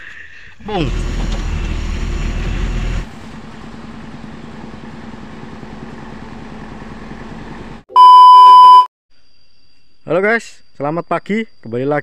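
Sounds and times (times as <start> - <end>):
diesel engine idling: 0.6 - 7.8
diesel truck engine rumble: 0.6 - 7.8.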